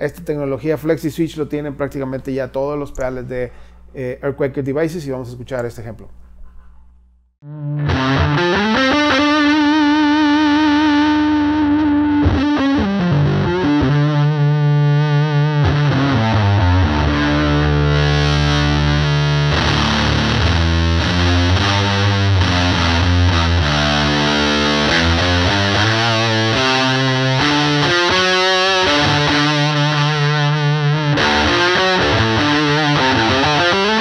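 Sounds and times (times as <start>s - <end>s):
distorted electric guitar: 7.4s - 34.0s.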